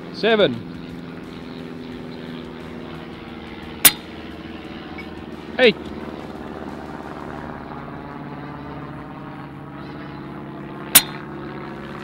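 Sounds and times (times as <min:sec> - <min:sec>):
mechanical drone: 0:00.0 - 0:12.0
air rifle shot: 0:10.9 - 0:11.3.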